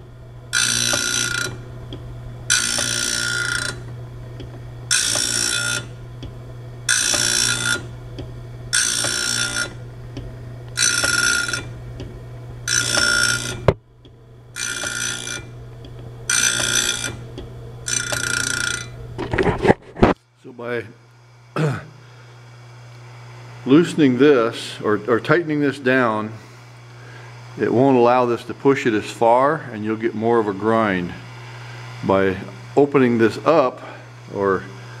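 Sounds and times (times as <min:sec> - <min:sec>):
grinding wheel rasping on blade: 0:00.0 - 0:13.8, 0:14.5 - 0:19.7
grinder motor hum: 0:00.0 - 0:21.0, 0:21.6 - 0:35.0.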